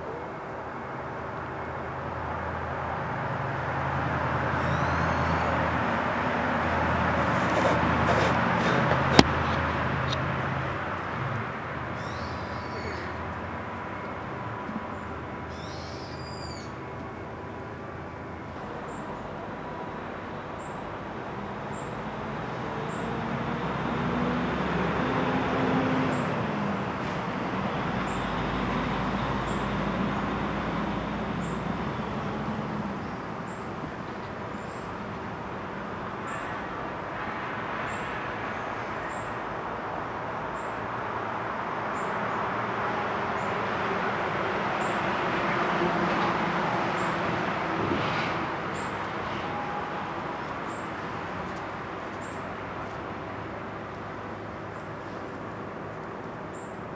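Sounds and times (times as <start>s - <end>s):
vehicles passing: 0.0s - 56.9s.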